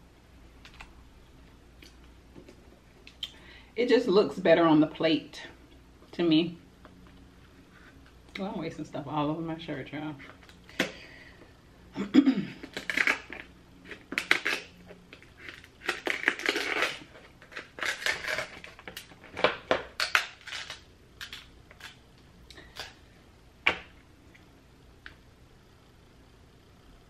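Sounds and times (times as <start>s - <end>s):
shears crunching crab shell: 12.6s - 22.0s.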